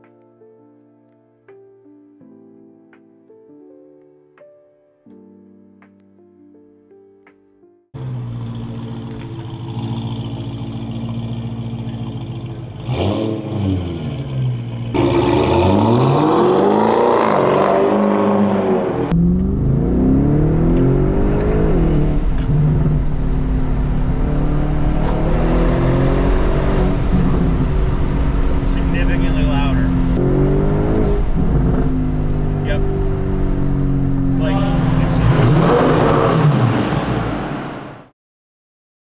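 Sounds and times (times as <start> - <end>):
car engine revving and accelerating: 8.0 - 38.0.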